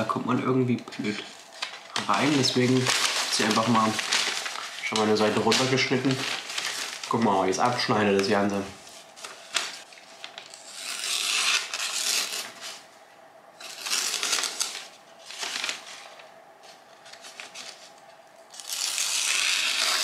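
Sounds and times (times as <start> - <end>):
knife slicing through paper: 10.6 - 12.8, 13.6 - 15.9, 18.6 - 20.0.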